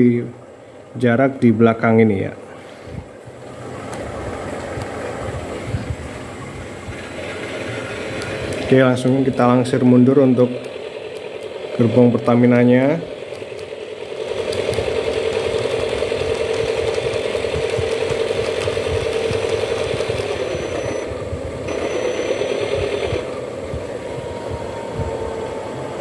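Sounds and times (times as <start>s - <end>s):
model locomotive motor hum: 2.6s - 26.0s
wheels rattling over track: 6.8s - 26.0s.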